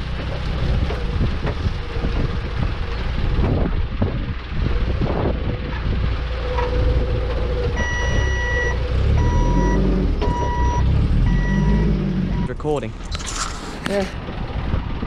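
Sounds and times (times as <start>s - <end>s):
forklift engine running: 0.0s - 15.0s
reversing alarm beeps: 7.8s - 12.5s.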